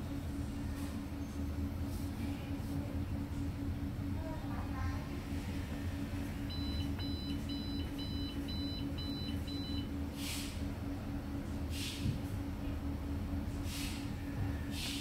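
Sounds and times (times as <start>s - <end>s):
low electrical hum: 0.0s - 15.0s
short hissing noises: 10.2s - 10.6s.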